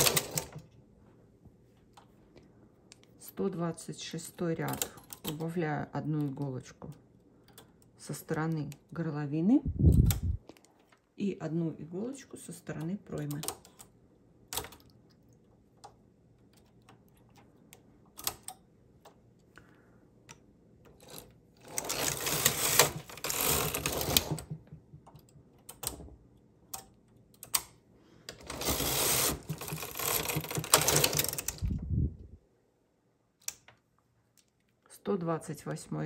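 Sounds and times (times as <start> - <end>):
knitting machine carriage clicking: 0.0 - 0.7, 3.3 - 9.2, 12.3 - 13.9, 20.8 - 26.1, 28.3 - 31.8.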